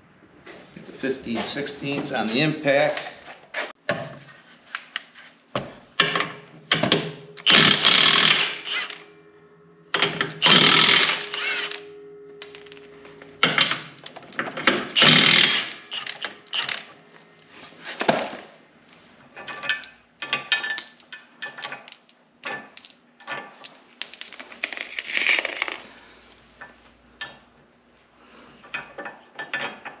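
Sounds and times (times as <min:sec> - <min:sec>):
impact wrench hammering: 0:07.4 - 0:09.0, 0:10.0 - 0:12.7, 0:15.0 - 0:16.8.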